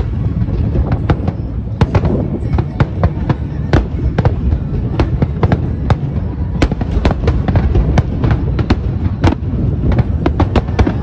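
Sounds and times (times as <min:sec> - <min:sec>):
low rumble of explosions: 0:00.0 - 0:11.0.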